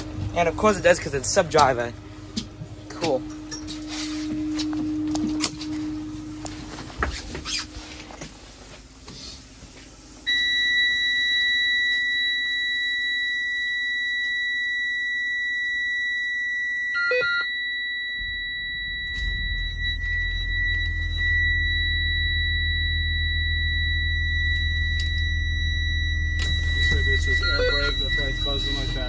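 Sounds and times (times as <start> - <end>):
bus engine rumble: 0.0 - 10.2, 18.2 - 29.0
dashboard warning buzzer: 10.3 - 29.0
short beeps: 10.3 - 29.0.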